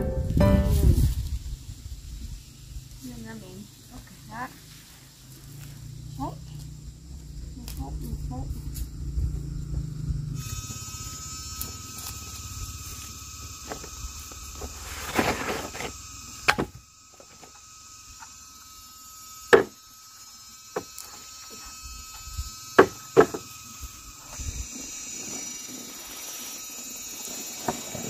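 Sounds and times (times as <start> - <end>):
insects chirping: 0.0 - 28.0
wooden logs knocking: 22.8 - 23.4.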